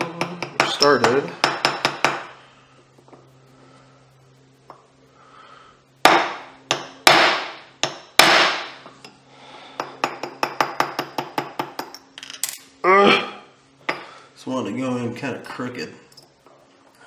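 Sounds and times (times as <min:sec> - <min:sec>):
hammer striking metal pin: 0:06.0 - 0:08.7.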